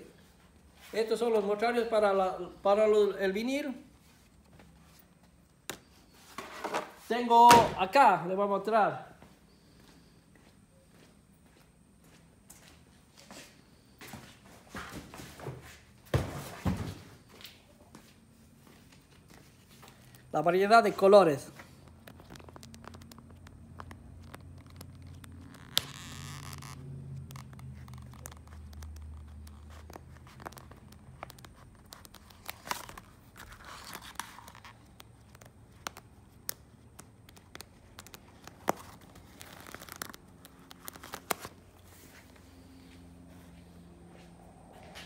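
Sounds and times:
plastic sheet crinkling: 21.7 - 42.0
cards flicking and tapping: 21.8 - 41.5.

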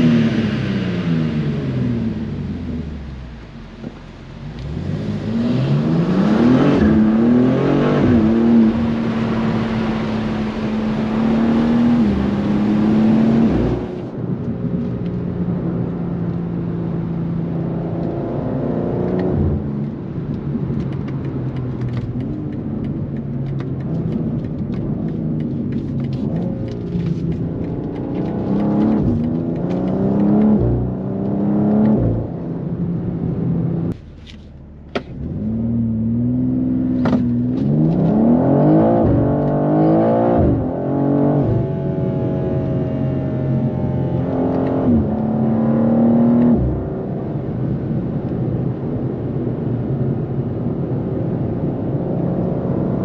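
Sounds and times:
car engine accelerating: 0.0 - 53.0.

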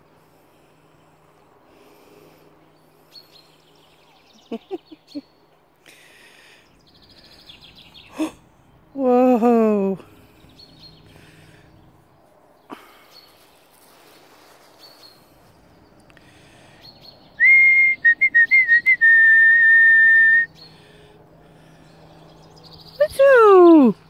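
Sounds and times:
loud whistle: 17.4 - 20.5.

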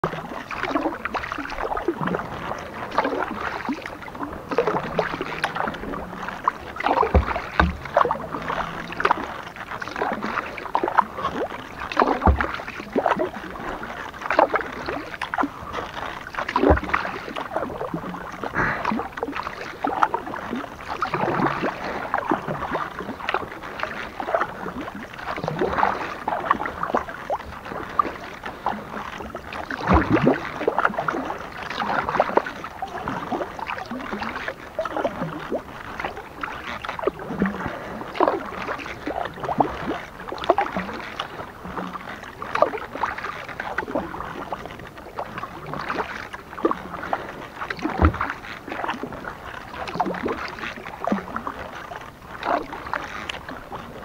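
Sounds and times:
paddle splashing in water: 0.0 - 54.0
water dripping: 4.5 - 13.5.

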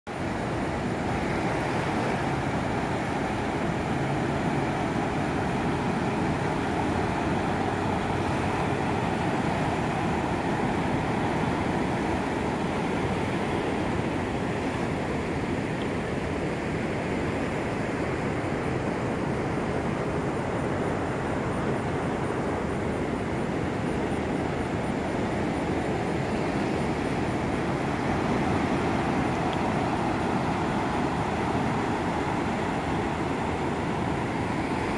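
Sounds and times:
floodwater rushing: 0.1 - 20.2, 23.4 - 34.9.

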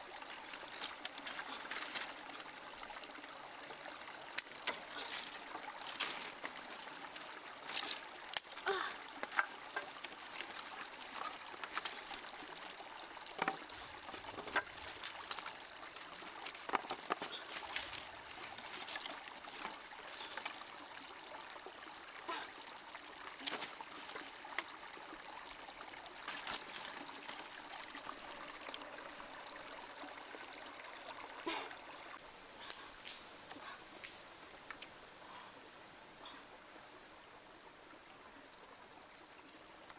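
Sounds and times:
stream trickling over rocks: 0.0 - 39.9
wooden sticks clicking and knocking: 4.3 - 20.6.

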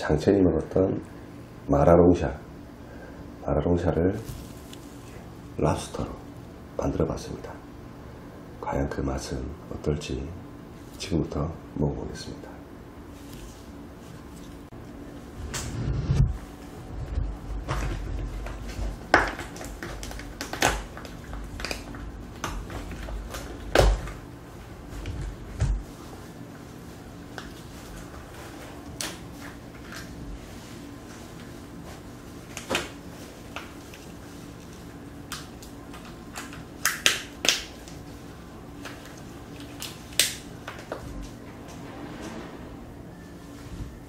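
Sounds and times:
lobster shell cracking: 35.3 - 37.7.

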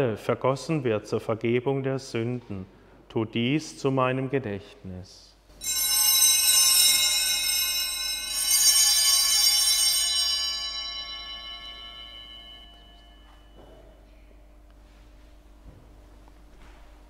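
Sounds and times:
altar bells ringing: 5.6 - 14.0.

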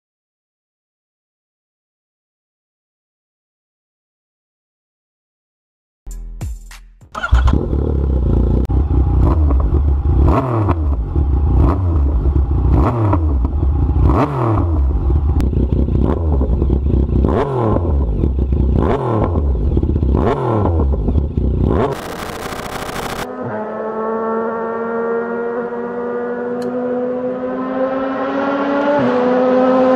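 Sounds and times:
motorcycle engine revving: 7.2 - 29.9.

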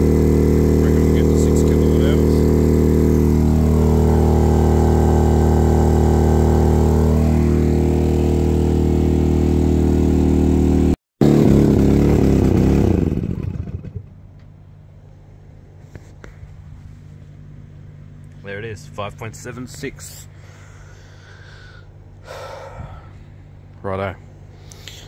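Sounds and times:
generator winding down: 0.0 - 14.3
generator engine running: 0.0 - 25.0.

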